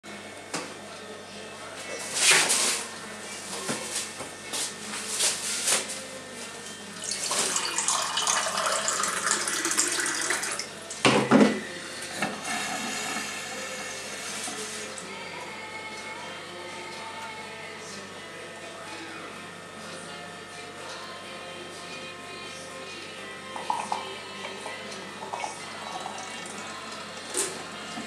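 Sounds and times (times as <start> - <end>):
water pouring into a glass: 7.0 - 10.7.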